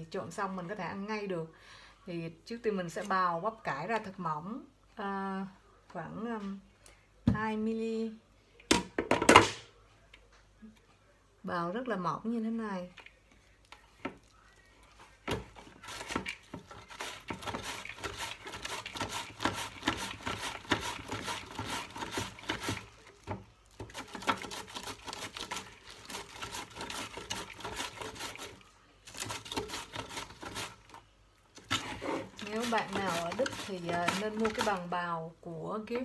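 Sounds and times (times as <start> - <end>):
cabbage slicing on mandoline: 15.8 - 22.9, 23.8 - 30.9, 31.6 - 34.9.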